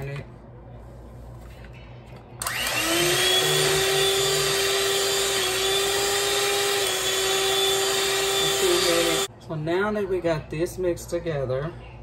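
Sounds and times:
electric hand mixer whirring: 0:02.4 - 0:09.3.

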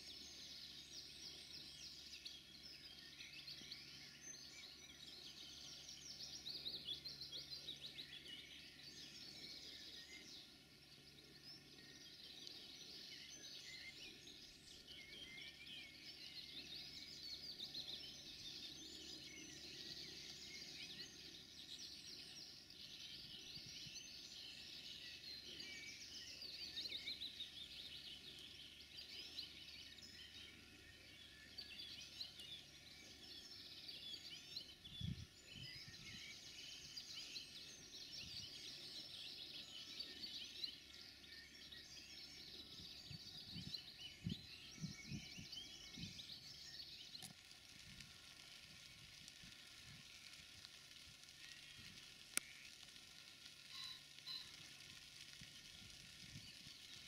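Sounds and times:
songbirds chirping and warbling: 0:00.0 - 0:57.0.

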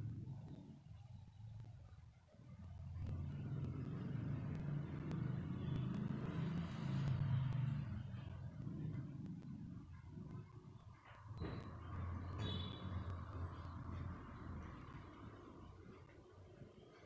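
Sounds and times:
vehicle passing by: 0:02.7 - 0:16.1.

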